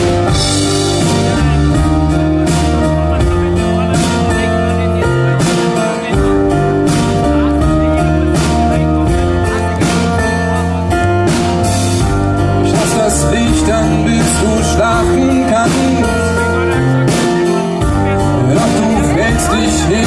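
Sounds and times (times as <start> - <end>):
drum kit: 0.0 - 20.0
strummed acoustic guitars: 0.0 - 20.0
person singing: 12.4 - 20.0.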